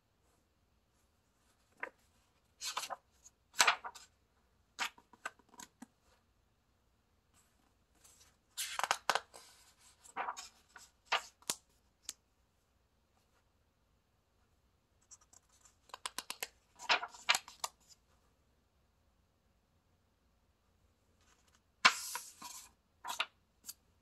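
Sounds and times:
book pages turning: 0:02.6 - 0:04.1, 0:08.1 - 0:11.6, 0:15.2 - 0:17.9, 0:21.4 - 0:23.3.

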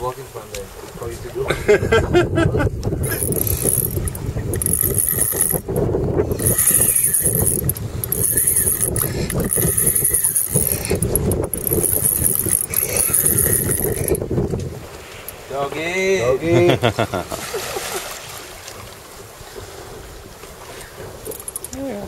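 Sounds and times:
fishing reel drag buzzing: 0:03.0 - 0:14.3, 0:21.3 - 0:21.9.

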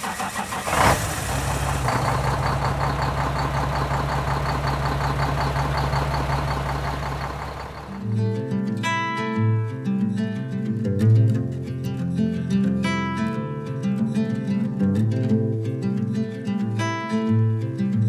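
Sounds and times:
car engine revving and idling: 0:00.0 - 0:08.0
guitar music: 0:07.9 - 0:18.0.

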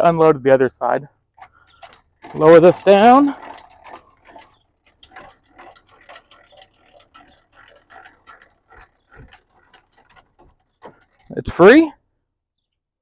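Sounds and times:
metallic clicking of cranked jack: 0:01.4 - 0:11.8.

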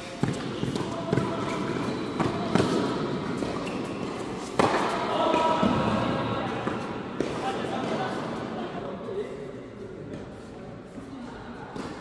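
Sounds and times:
tennis balls bouncing on hard court: 0:00.0 - 0:08.0
tennis balls hit by rackets: 0:00.0 - 0:08.1.

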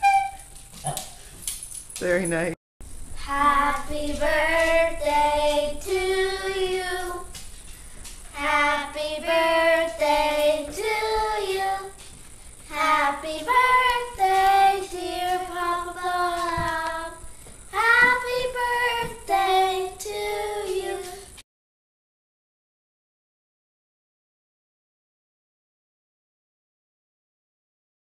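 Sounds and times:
girls singing unaccompanied: 0:03.2 - 0:07.4, 0:08.3 - 0:12.0, 0:12.7 - 0:21.4.

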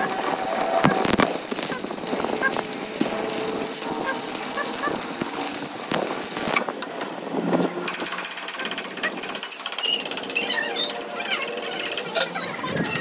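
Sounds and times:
metal lathe rattling: 0:07.9 - 0:13.0.

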